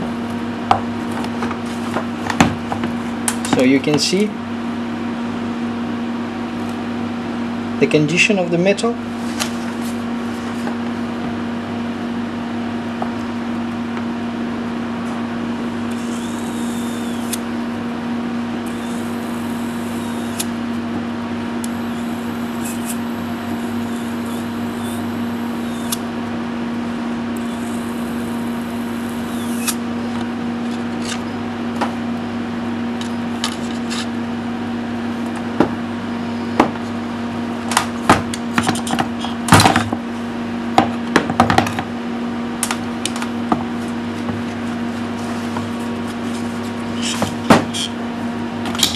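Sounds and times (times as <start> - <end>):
electropolishing brush hum: 15.6 - 26.2, 26.9 - 30.2.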